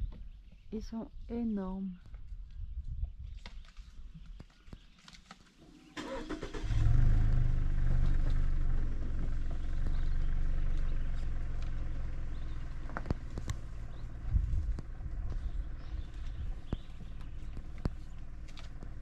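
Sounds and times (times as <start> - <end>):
car engine cranking: 5.6 - 19.0
car engine idling: 5.7 - 19.0.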